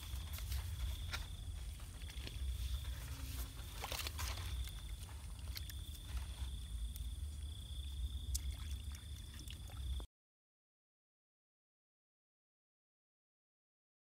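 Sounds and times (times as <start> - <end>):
hands splashing in water: 8.2 - 10.0.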